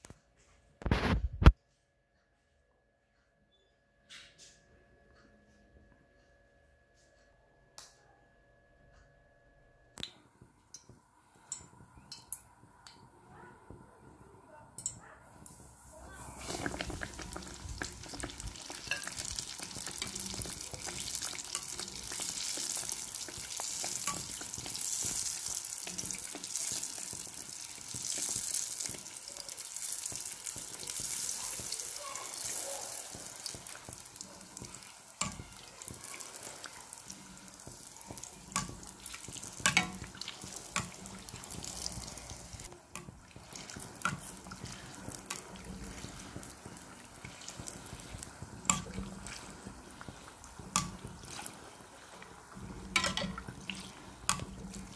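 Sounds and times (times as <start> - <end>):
dough sizzling in hot oil: 15.4 - 54.9.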